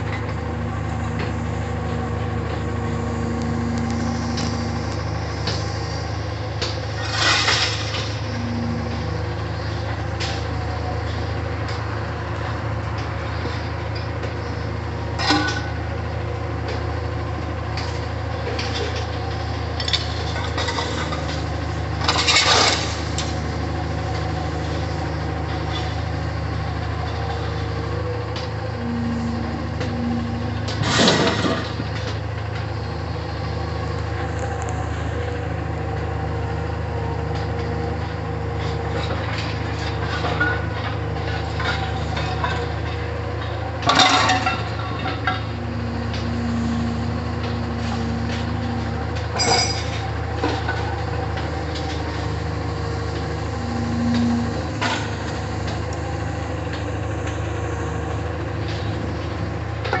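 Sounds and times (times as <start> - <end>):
diesel engine running: 0.0 - 60.0
scrap metal crashing: 7.0 - 8.6.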